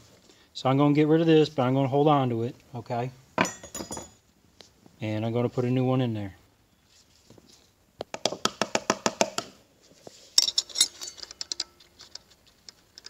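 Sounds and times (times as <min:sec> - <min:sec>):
metal parts clicking and clinking: 0:10.4 - 0:13.0.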